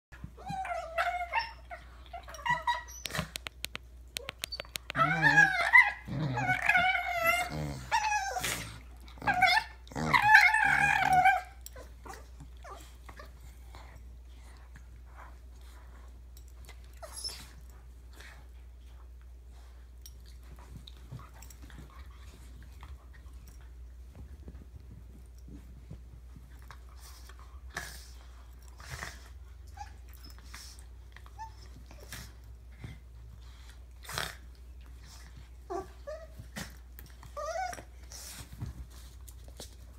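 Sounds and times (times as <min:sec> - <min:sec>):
dog high squeaks: 0:04.2 - 0:08.5
dog play vocalizations: 0:04.2 - 0:15.3.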